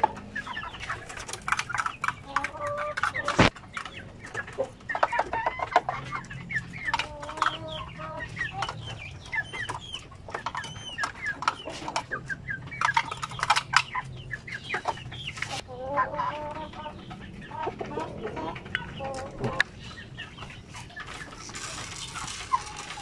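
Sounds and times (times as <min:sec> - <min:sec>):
chickens clucking: 0:00.0 - 0:23.0.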